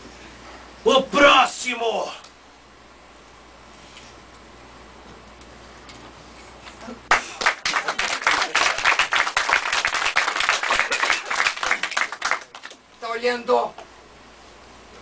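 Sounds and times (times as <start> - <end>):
faint room hum: 0.0 - 15.0
audience clapping: 7.1 - 12.9.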